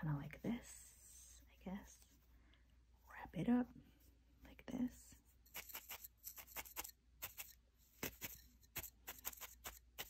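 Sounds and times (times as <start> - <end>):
felting needle stabbing wool: 5.5 - 10.0.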